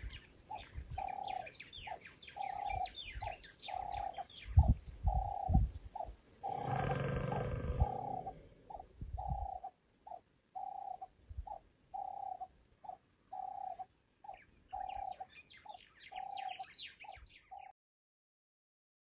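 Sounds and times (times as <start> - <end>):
small birds chirping: 0.0 - 17.8
dove cooing: 0.5 - 15.3
elephant snoring rumble: 6.4 - 8.8.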